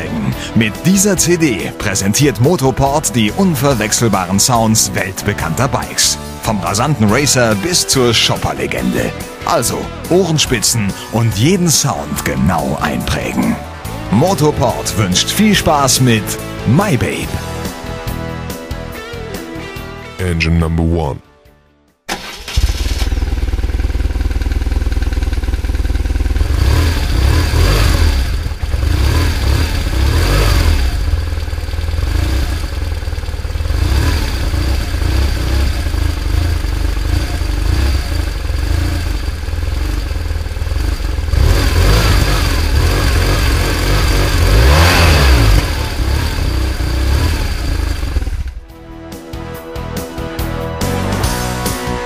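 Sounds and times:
motorcycle engine revving: 12.8 - 15.4, 22.2 - 48.8.

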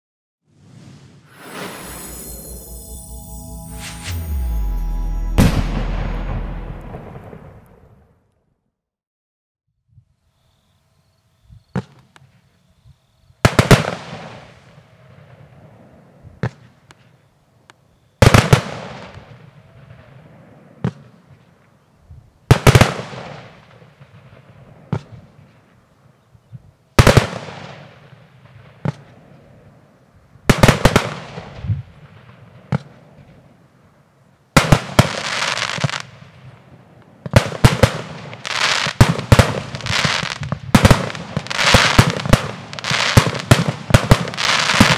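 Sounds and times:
faint firework pops: 16.4 - 17.1, 28.8 - 29.1.

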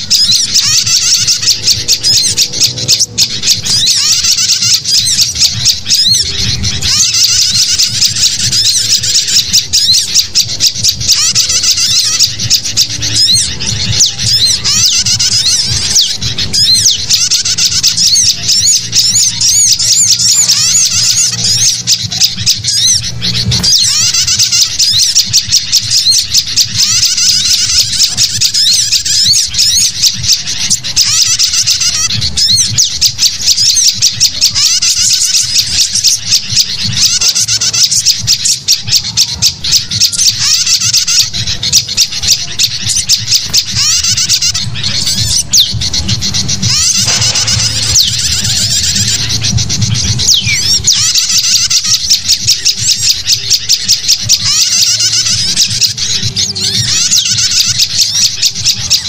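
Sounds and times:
bulbuls chattering: 0.0 - 59.0
songbirds chirping and trilling: 0.0 - 59.0
steady low hum: 0.0 - 59.0.

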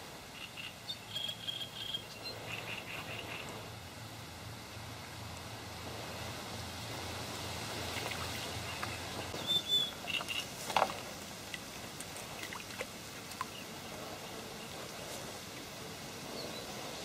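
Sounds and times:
bird chirps: 0.4 - 3.4, 8.6 - 10.5
wind hissing: 1.5 - 17.0.

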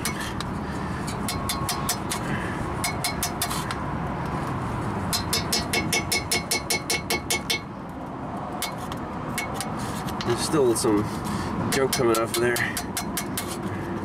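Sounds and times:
metal tool scraping rust: 0.0 - 3.8, 5.1 - 7.7, 8.6 - 10.4, 11.1 - 14.0.

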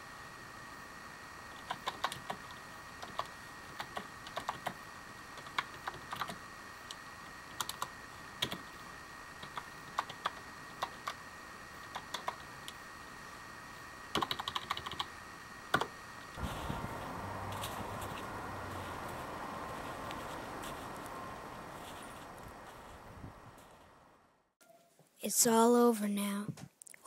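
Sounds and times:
faint high-pitched hum: 0.0 - 27.0
computer keyboard typing: 1.6 - 4.8, 5.4 - 6.4, 7.5 - 8.7, 9.4 - 11.2, 11.9 - 12.8, 14.1 - 15.1.

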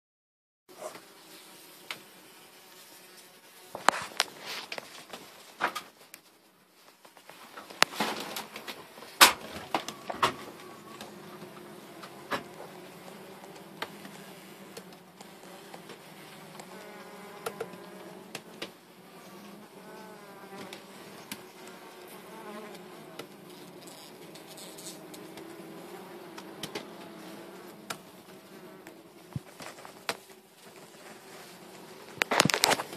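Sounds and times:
bees buzzing: 7.8 - 32.9.

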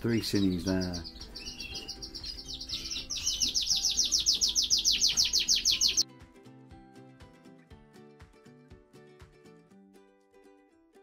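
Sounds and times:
bird nestlings chirping: 0.0 - 6.0
soft music: 0.0 - 11.0.

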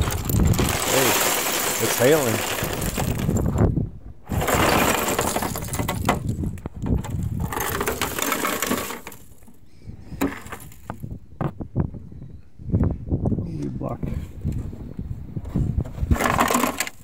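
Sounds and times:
ice cubes clattering on plastic: 0.0 - 3.6, 4.3 - 6.4, 7.0 - 9.4, 16.2 - 17.0.

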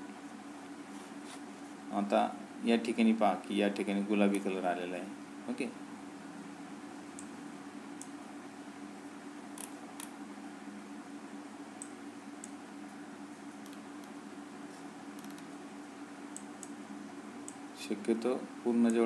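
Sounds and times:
steady low hum: 0.0 - 19.0
computer mouse clicks: 9.6 - 10.2, 13.6 - 14.2, 15.2 - 15.5.

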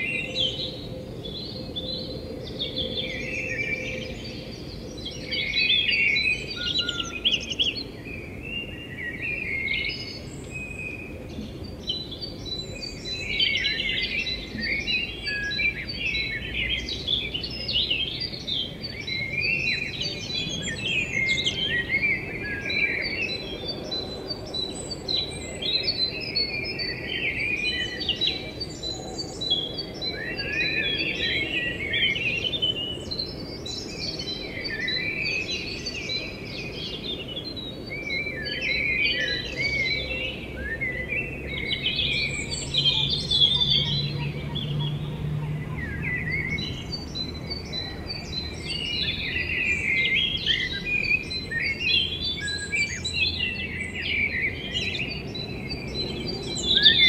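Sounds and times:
birds chirping chorus: 0.0 - 57.0.

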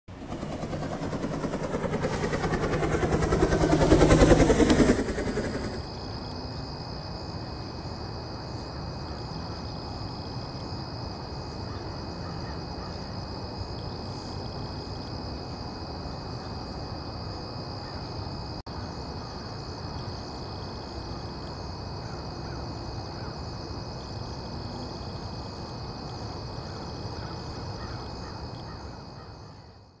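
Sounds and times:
high-pitched insect drone: 0.2 - 6.7.

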